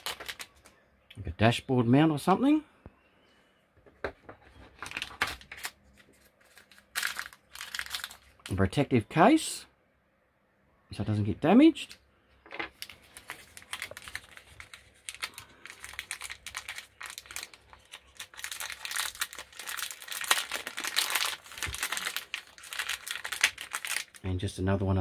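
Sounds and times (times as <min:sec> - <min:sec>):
plastic packaging crinkling: 0:00.0 - 0:00.7, 0:04.4 - 0:08.6, 0:12.6 - 0:24.3.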